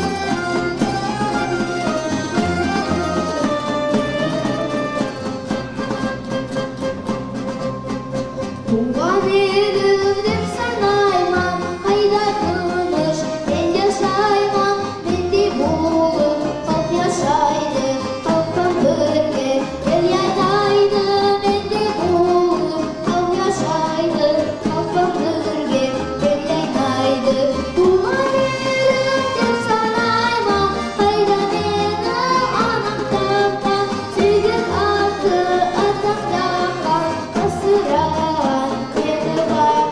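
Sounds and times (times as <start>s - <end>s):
plucked string instruments: 0.0s - 39.9s
boy singing: 8.7s - 39.9s.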